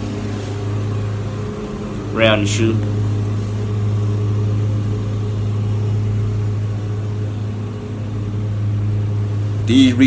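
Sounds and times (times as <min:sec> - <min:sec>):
low mechanical hum: 0:00.0 - 0:10.0.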